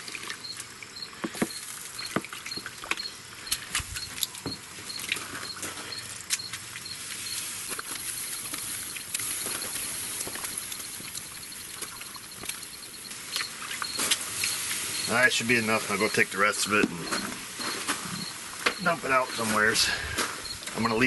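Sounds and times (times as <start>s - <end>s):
meat sizzling and popping: 0.0s - 5.7s, 6.3s - 19.0s.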